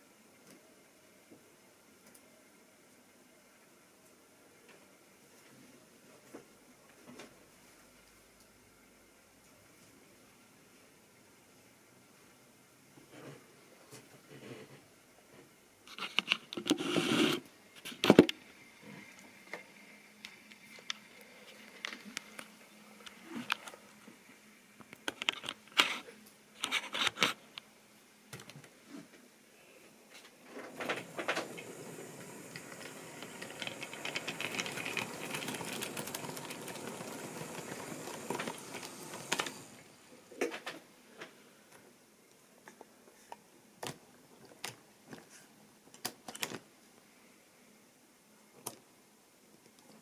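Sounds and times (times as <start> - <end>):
model train wheels rattling: 30.5 - 39.9
scattered clicks and knocks: 32.5 - 39.7.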